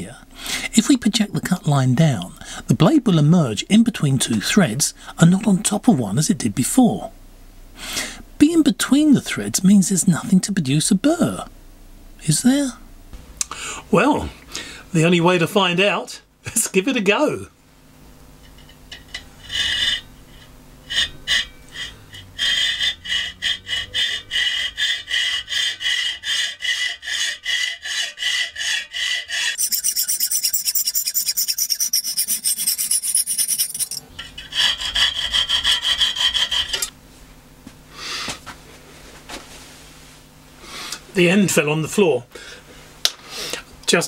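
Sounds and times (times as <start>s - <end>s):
hacksaw cutting steel rod: 19.0s - 37.0s.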